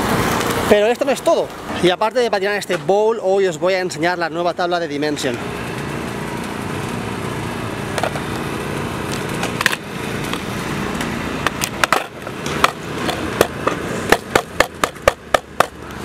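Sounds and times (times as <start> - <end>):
machine hum: 4.9 - 16.0
skateboard clacking: 11.4 - 15.8.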